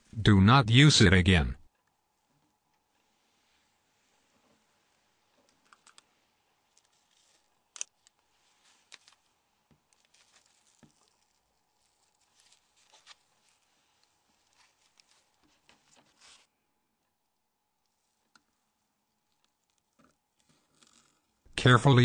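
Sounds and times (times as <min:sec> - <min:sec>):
faint clicks and rustles of plastic: 0:01.7 - 0:21.5.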